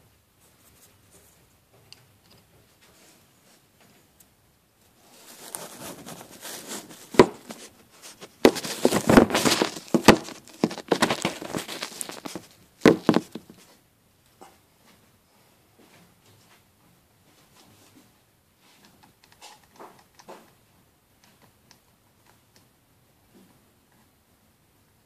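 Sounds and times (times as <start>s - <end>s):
rustling against microphone: 4.9s - 13.8s.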